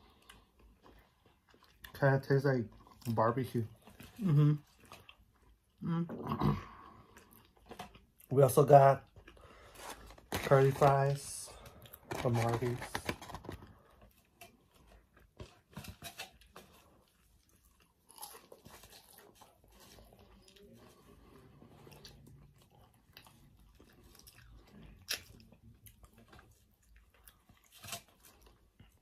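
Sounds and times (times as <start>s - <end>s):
chewing and biting food: 0.0s - 5.8s, 13.2s - 29.0s.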